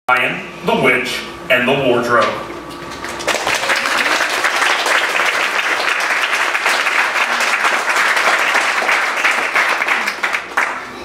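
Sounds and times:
audience applauding: 0:02.9 - 0:11.0.

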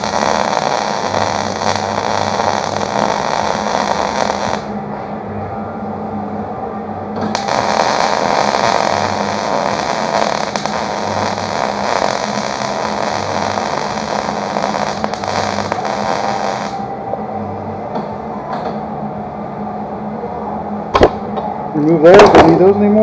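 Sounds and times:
welding arc crackling and sizzling: 0:00.0 - 0:04.7, 0:07.3 - 0:16.8.

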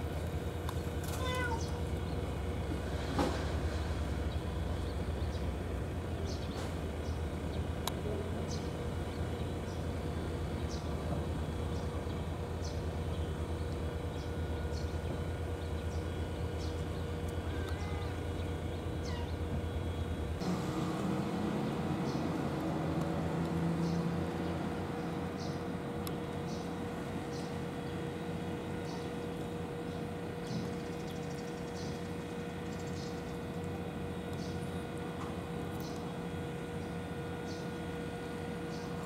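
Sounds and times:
steady low rumble: 0:00.0 - 0:39.0.

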